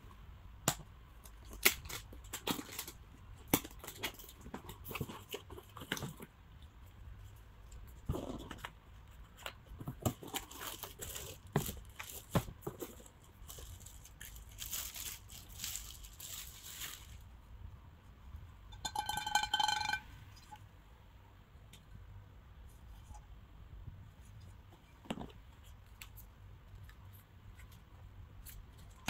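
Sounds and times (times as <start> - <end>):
cardboard boxes handled: 9.3 - 14.0
plastic bag crinkling: 10.2 - 17.3.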